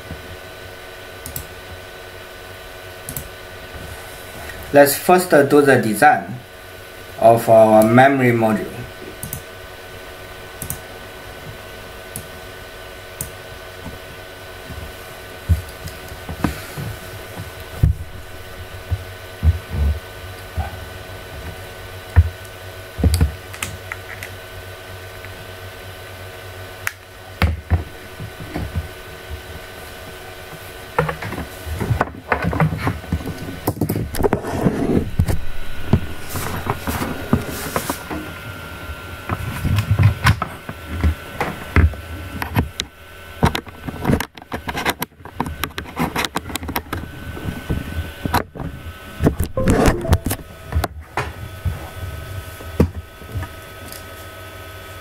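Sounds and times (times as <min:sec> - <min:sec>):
electrical hum: 0:00.0 - 0:44.3, 0:46.4 - 0:53.8
clicks and low thumps: 0:49.5 - 0:50.5.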